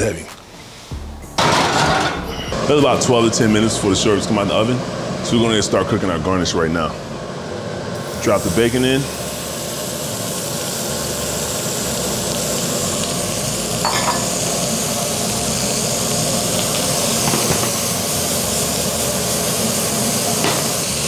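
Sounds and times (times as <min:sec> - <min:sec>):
bacon sizzling in a skillet: 0:07.6 - 0:21.0.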